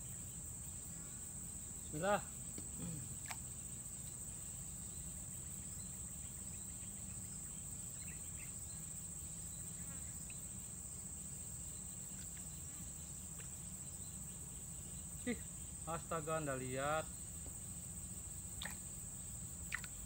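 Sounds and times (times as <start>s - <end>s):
insects shrilling: 11.5s - 20.0s.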